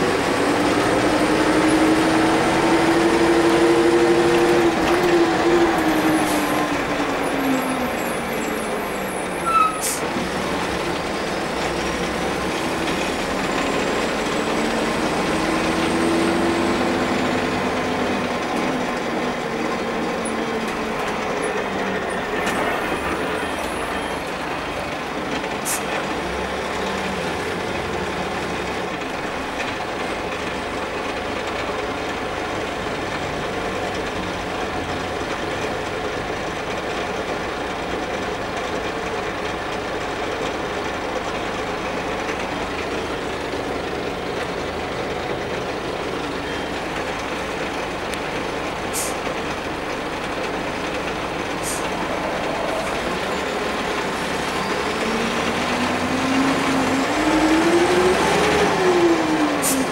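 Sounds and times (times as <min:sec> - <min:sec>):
bus diesel engine: 0:00.0 - 0:59.9
road noise: 0:00.0 - 0:59.9.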